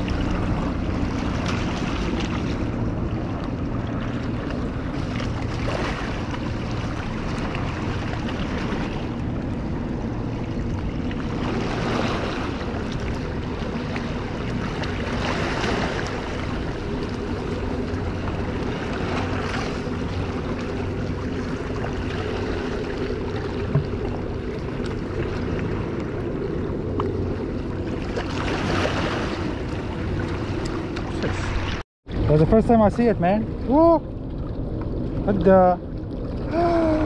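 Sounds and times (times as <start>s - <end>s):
steady low hum: 0.0s - 37.0s
small waves washing against rocks: 28.0s - 32.4s.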